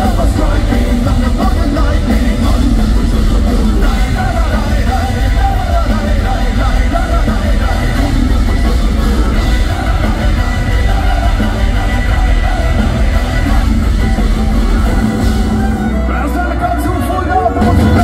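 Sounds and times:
bass guitar: 0.0 - 18.0
distorted guitars: 0.0 - 18.0
heavy drums: 0.0 - 18.0
person singing: 0.0 - 18.0.

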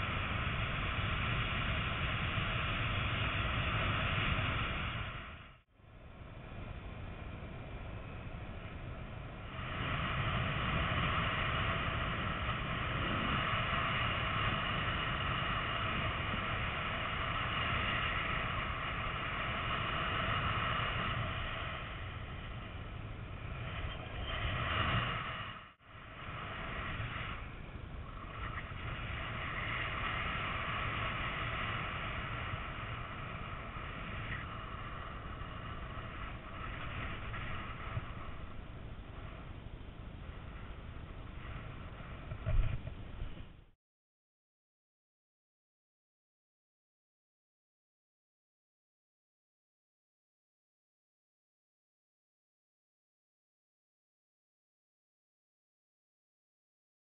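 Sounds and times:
wind buffeting microphone: 0.0 - 43.7.

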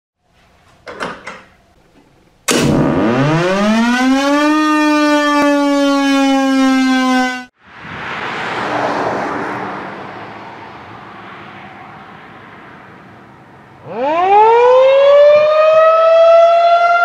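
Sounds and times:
warning siren winding up: 2.5 - 7.5, 13.8 - 17.0.

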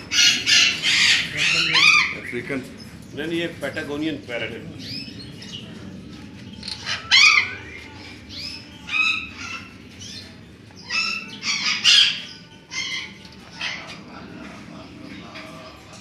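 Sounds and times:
parrots squawking: 0.0 - 2.5, 6.6 - 16.0.

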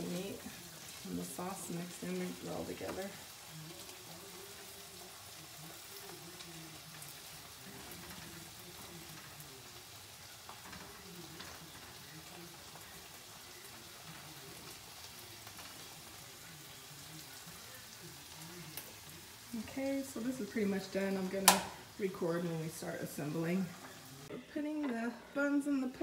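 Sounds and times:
food sizzling in skillets: 0.0 - 26.0
light clicks in pan: 21.4 - 21.8.

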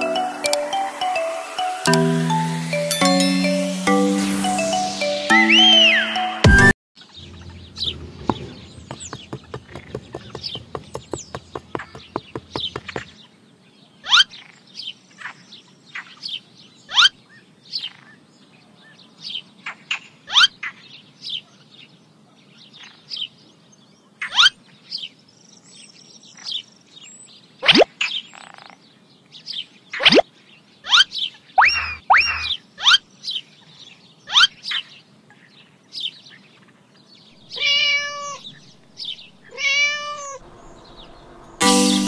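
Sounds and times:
birds chirping: 7.0 - 13.2, 40.4 - 42.0
fast even ticking: 7.3 - 13.1.

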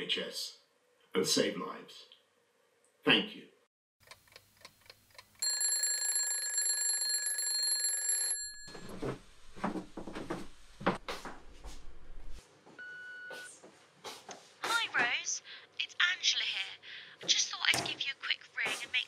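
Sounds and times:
alarm clock ticking: 5.2 - 8.4
alarm clock bell ringing: 5.4 - 8.9.

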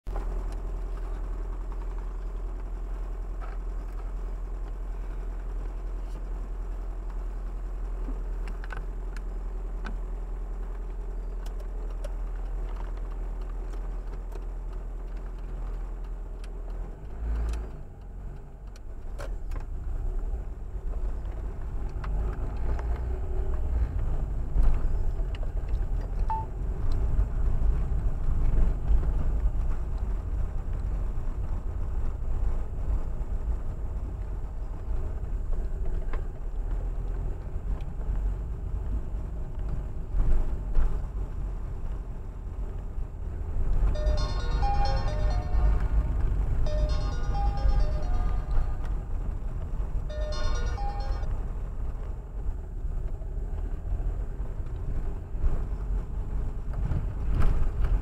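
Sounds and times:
road rumble: 0.0 - 58.0
car engine idling: 43.8 - 51.5.

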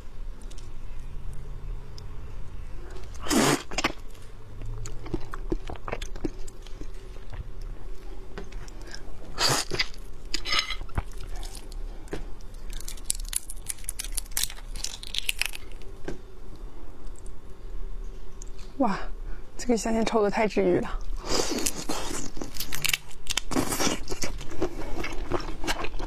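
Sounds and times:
prawn shell cracking: 12.4 - 15.9.

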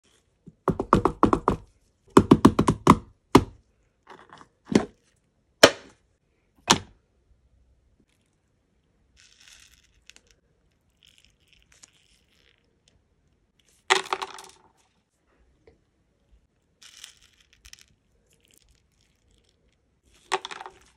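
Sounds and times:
hand rustling through wax beads: 9.1 - 12.9, 16.6 - 20.9.

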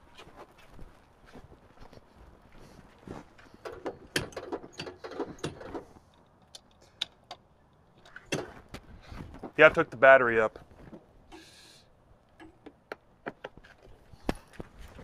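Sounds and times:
clicks and knocks: 3.6 - 5.9.

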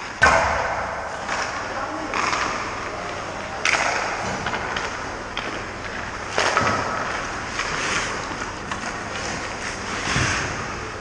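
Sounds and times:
skate blades scraping ice: 4.7 - 10.9.

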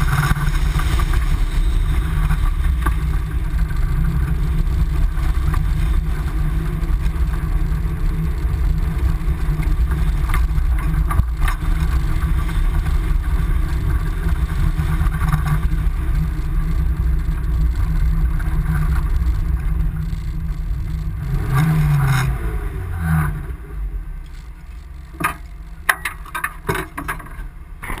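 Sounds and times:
buggy engine running: 0.0 - 28.0
sharp knocks and clatters: 24.3 - 28.0.

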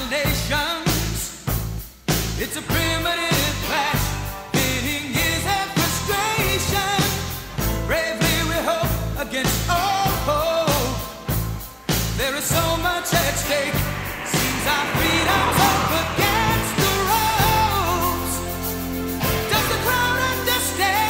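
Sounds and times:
song with sung vocals: 0.0 - 1.5, 2.3 - 21.0
heavy bass beat: 11.3 - 18.6.

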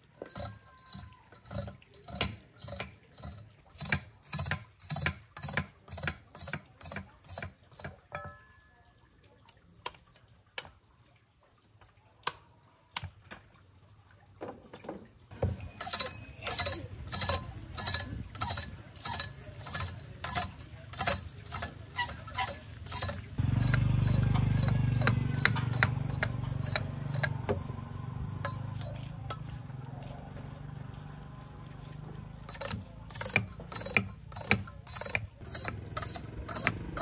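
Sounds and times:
sugarcane scraping strokes: 15.4 - 27.6, 31.4 - 37.0.

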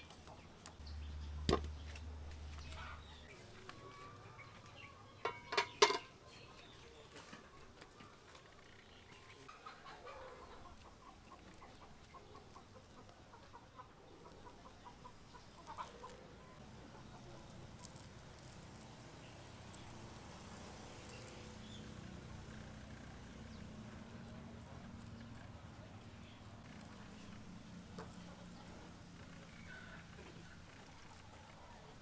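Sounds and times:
chicken clucking: 9.4 - 17.4.

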